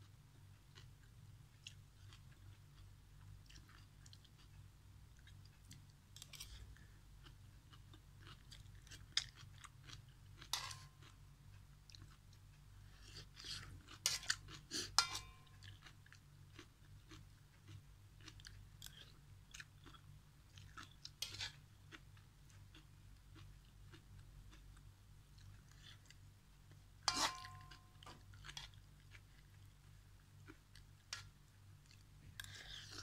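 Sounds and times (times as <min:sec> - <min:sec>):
low steady hum: 0:00.0 - 0:33.0
chewing and slurping noodles: 0:12.8 - 0:15.0.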